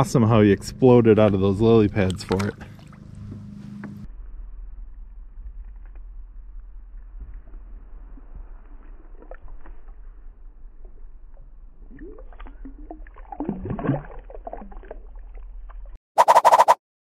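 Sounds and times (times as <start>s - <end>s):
steady low rumble: 0.0s - 16.0s
water sloshing and gurgling: 0.8s - 4.1s, 7.4s - 16.0s.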